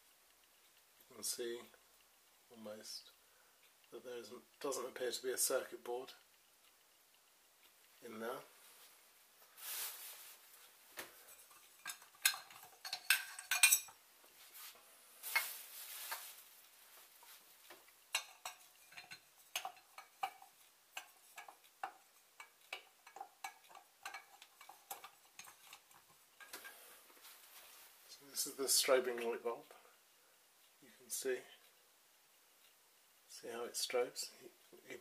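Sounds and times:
short rustle: 0:08.5 - 0:11.3, 0:14.3 - 0:17.7
bulb clicking and clinking: 0:11.3 - 0:14.0, 0:18.1 - 0:26.7.

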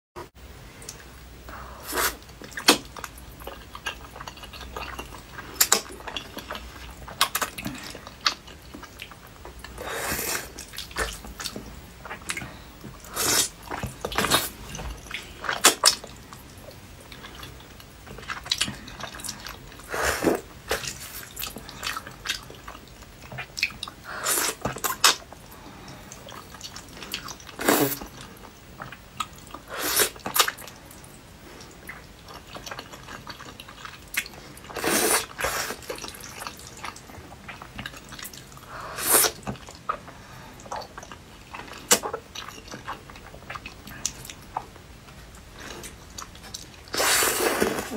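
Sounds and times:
wet slurping: 0:09.8 - 0:16.0, 0:34.7 - 0:36.5, 0:46.5 - 0:47.9.

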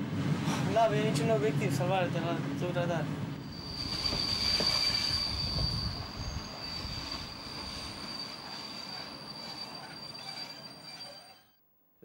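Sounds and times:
train wheels squealing: 0:03.4 - 0:11.6.

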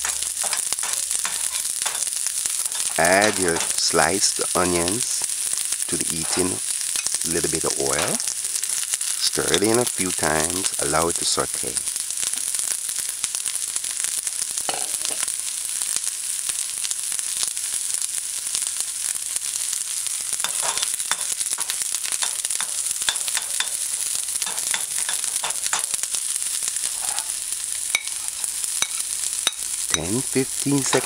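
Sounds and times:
spoon scraping a pan: 0:00.0 - 0:05.3, 0:05.9 - 0:08.8, 0:09.4 - 0:10.8, 0:20.4 - 0:31.0
onions sizzling in oil: 0:00.0 - 0:31.0.

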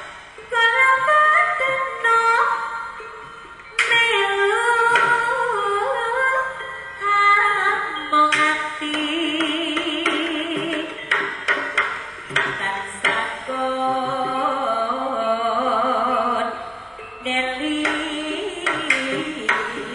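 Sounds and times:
person singing: 0:00.0 - 0:11.3, 0:12.4 - 0:19.9
gamelan-style instruments: 0:00.0 - 0:19.9
sharp drum strikes: 0:08.3 - 0:13.4.

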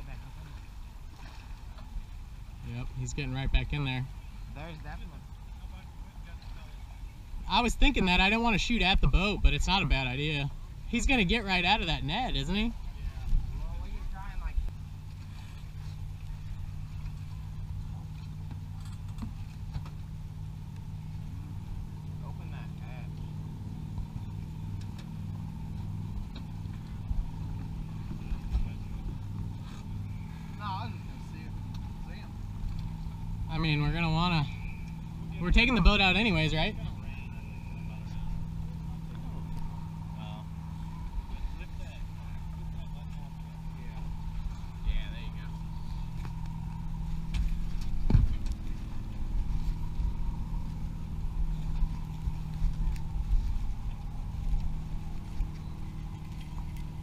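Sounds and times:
low engine hum: 0:00.0 - 0:57.0
dull low thumps: 0:23.2 - 0:57.0.

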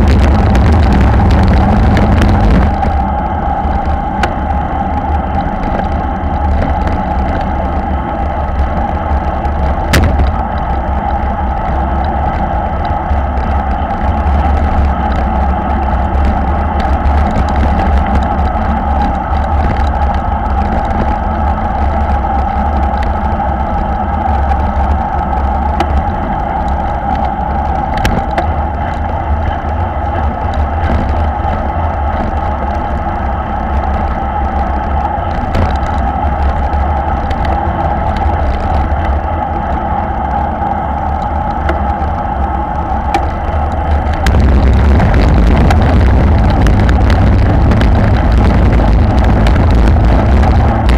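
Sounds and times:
bike tyres humming on asphalt: 0:00.0 - 0:50.9
wind rush on microphone: 0:00.0 - 0:50.9.

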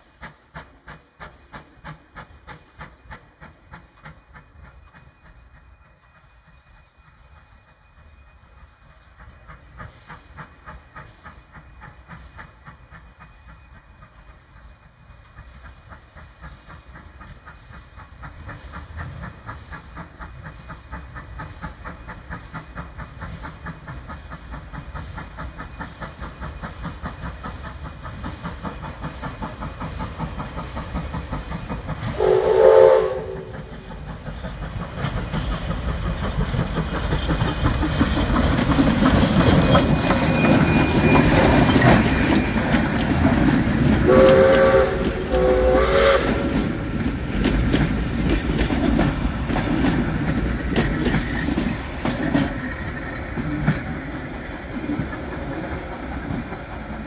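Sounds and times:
steam locomotive exhaust beating: 0:00.0 - 0:57.0
steam whistle: 0:32.1 - 0:33.8, 0:44.0 - 0:46.8
carriages clattering over rail joints: 0:33.3 - 0:45.5, 0:46.4 - 0:57.0.

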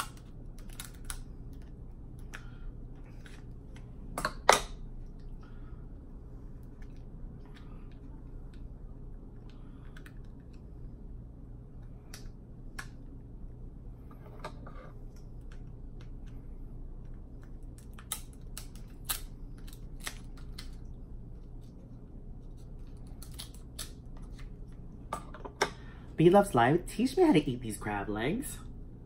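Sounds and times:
crab shells cracking: 0:00.0 - 0:02.4, 0:17.5 - 0:20.8, 0:23.0 - 0:24.0.

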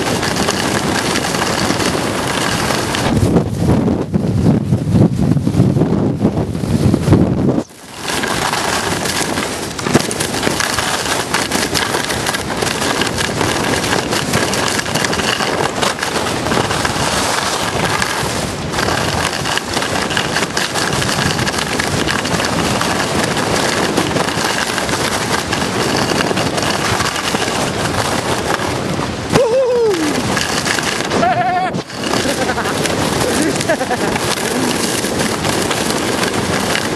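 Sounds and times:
skis scraping over snow: 0:00.0 - 0:36.9.

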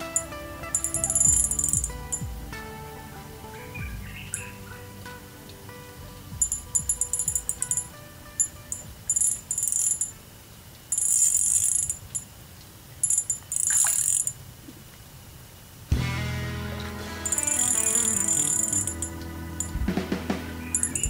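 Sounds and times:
loud background music: 0:00.0 - 0:07.8, 0:15.9 - 0:21.0
insects trilling: 0:17.2 - 0:19.8.

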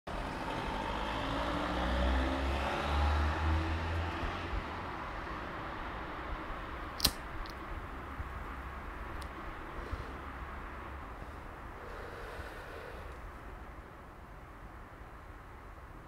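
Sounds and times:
sharp click: 0:07.0 - 0:07.6.

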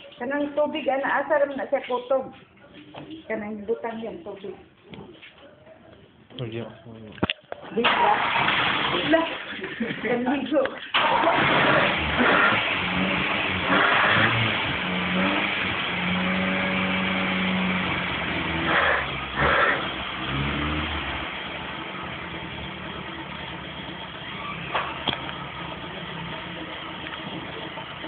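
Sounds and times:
car engine running: 0:10.9 - 0:28.0.

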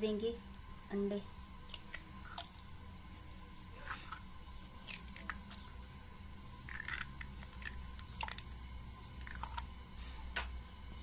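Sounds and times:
steady low hum: 0:00.0 - 0:11.0
eggshells cracking: 0:04.1 - 0:05.8, 0:06.6 - 0:08.6, 0:09.2 - 0:09.7.

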